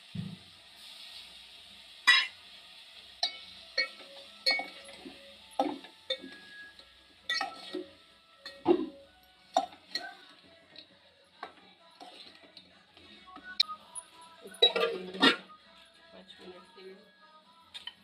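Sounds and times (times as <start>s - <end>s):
ladle scraping metal pot: 7.3s - 7.9s.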